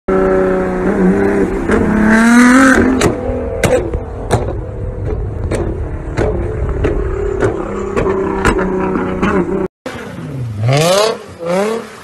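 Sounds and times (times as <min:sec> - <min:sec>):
car engine revving: 0:00.1 - 0:12.0
exhaust cracks and backfires: 0:01.3 - 0:10.1.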